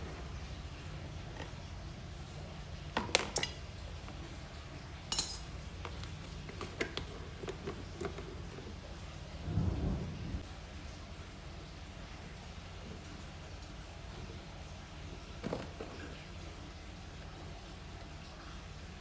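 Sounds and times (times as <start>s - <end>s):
metal tongs clicking: 5.1s - 5.4s
metal clink on tile: 5.1s - 5.5s.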